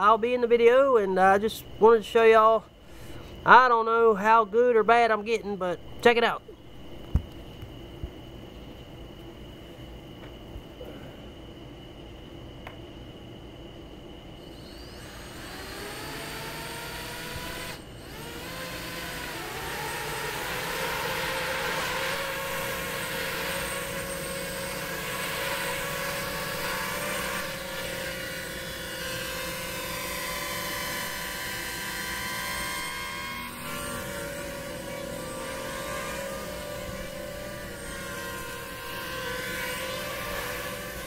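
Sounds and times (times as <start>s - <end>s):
drone motors whining and buzzing: 2.7s - 3.6s, 14.0s - 41.0s.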